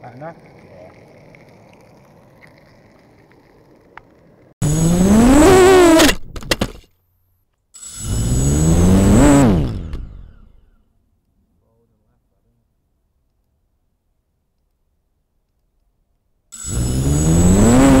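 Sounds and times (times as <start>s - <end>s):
quadcopter motors whining: 4.6s - 6.2s, 7.8s - 10.7s, 16.6s - 18.0s.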